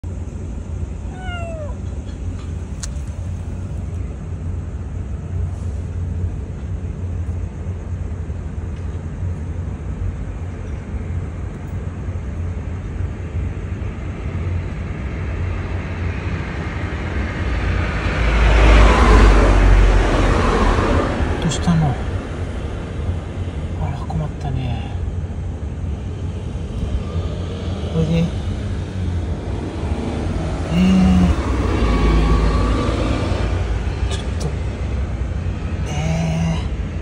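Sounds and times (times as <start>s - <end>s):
low rumble of road traffic: 0.0s - 37.0s
kitten mewing: 1.0s - 2.1s, 30.7s - 31.9s, 35.8s - 36.8s
car passing: 14.5s - 37.0s.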